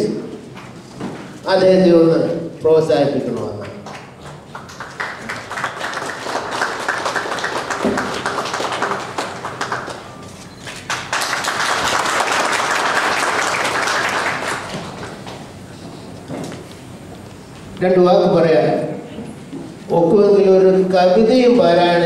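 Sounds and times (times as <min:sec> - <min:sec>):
audience applauding: 0:03.6 - 0:15.3.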